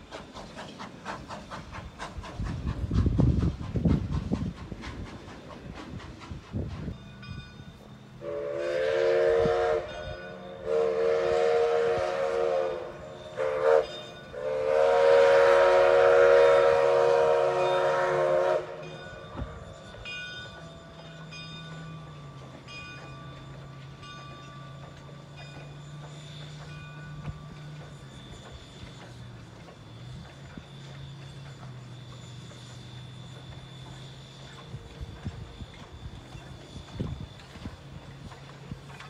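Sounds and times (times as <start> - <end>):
steam whistle blasts: 8.2 - 19.9.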